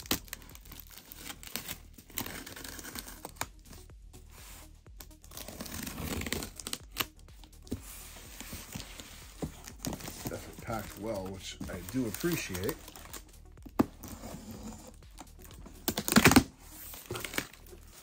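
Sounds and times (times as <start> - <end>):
plastic wrap tearing and crinkling: 0.0 - 3.5, 5.0 - 7.2, 9.5 - 18.0.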